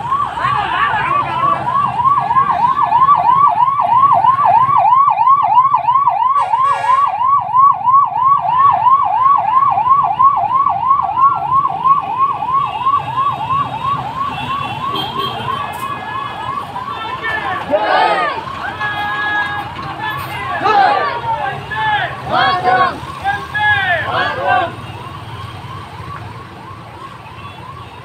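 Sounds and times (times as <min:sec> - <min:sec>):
ambulance siren yelping: 0:00.0 - 0:28.0.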